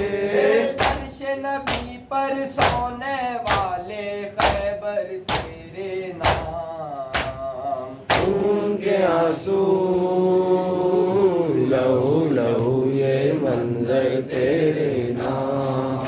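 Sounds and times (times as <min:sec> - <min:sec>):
lead singer reciting: 0:00.0 - 0:16.0
men chanting: 0:00.0 - 0:16.0.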